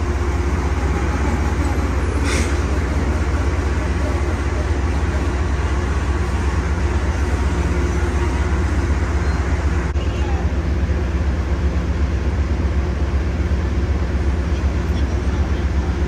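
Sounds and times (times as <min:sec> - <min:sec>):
diesel locomotive engine running: 0:00.0 - 0:16.0.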